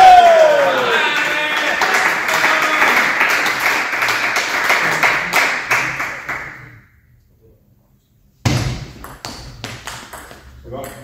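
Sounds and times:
people clapping: 0.0 - 6.7.

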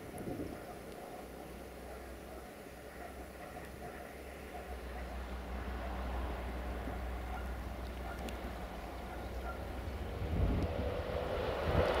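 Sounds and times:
wind rumbling on microphone: 0.0 - 2.0, 6.8 - 12.0
train rumbling: 0.6 - 12.0.

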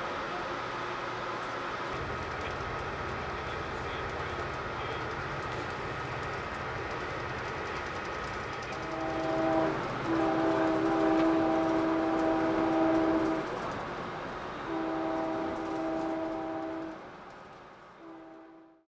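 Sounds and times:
moving train rumble: 0.0 - 18.8
train horn blasts: 7.6 - 13.8, 14.6 - 17.1, 18.0 - 18.8.

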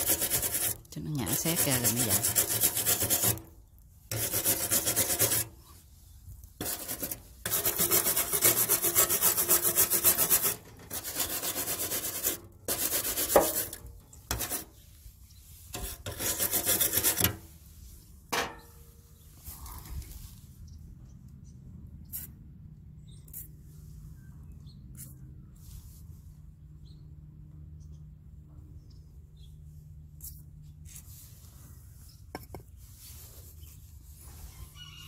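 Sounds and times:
wire brush scrubbing metal: 0.0 - 3.5, 4.1 - 5.9, 6.6 - 17.6.

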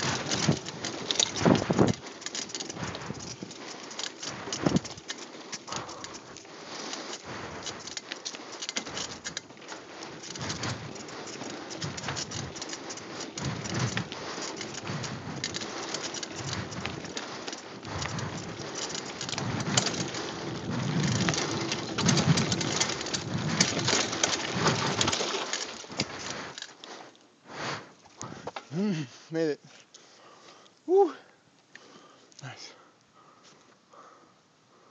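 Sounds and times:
wind buffeting microphone: 0.0 - 3.7
tyres crackling on dirt and stones: 0.0 - 28.8
bike rattling: 0.0 - 29.0.

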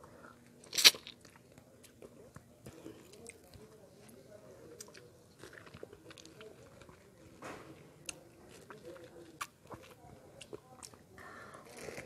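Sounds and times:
wet chewing: 0.4 - 3.7, 4.8 - 7.4, 8.0 - 11.0.

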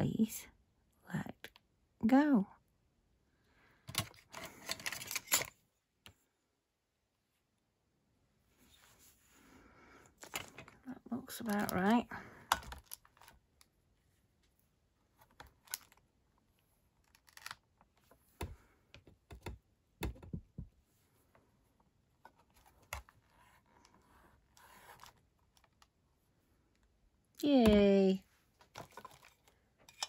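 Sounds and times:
soft plastic knocks and taps: 18.3 - 20.8.

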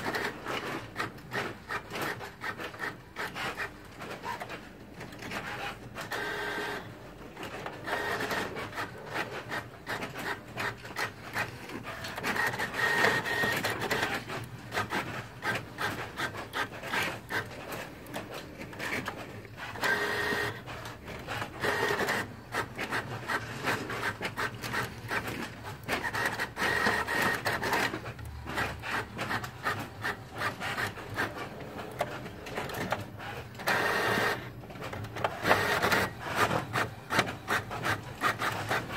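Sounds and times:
printer motor whines: 5.5 - 6.9, 12.1 - 14.2, 19.7 - 20.9, 33.6 - 34.6
printer clicking: 7.4 - 38.9.

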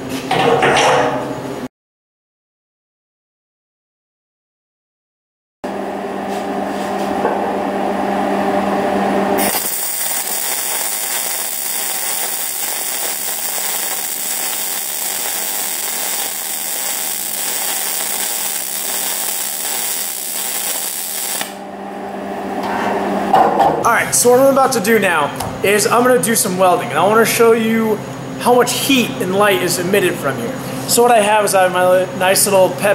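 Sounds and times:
machine hum: 5.6 - 32.3
welding arc sizzling: 9.4 - 21.6.

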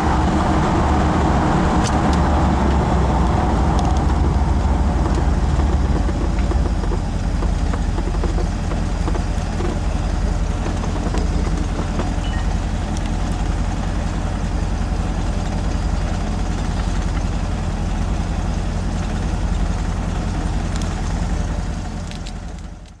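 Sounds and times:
pickup engine rumbling: 0.0 - 23.0
road noise: 0.0 - 23.0.

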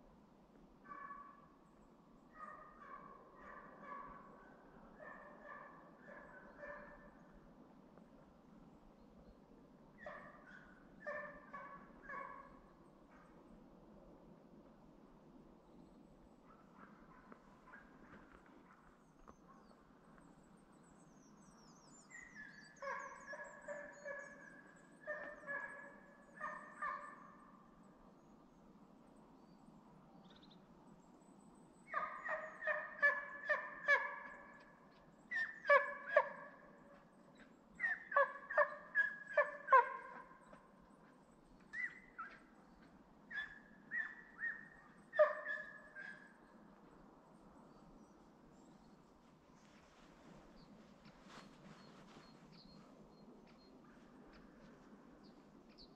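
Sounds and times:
hound barking: 0.9 - 1.4, 2.4 - 4.4, 5.0 - 7.1, 10.0 - 12.6, 22.8 - 27.2, 31.9 - 34.5, 37.8 - 40.3, 43.3 - 46.3.

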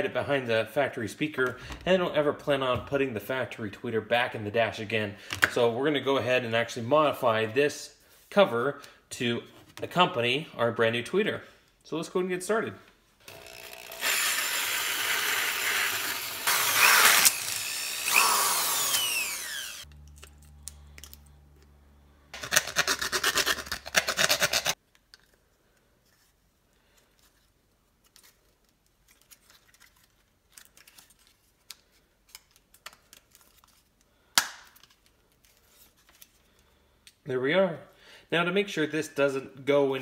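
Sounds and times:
cordless drill cutting plastic: 13.2 - 19.9
hand file rasping: 22.4 - 24.8.

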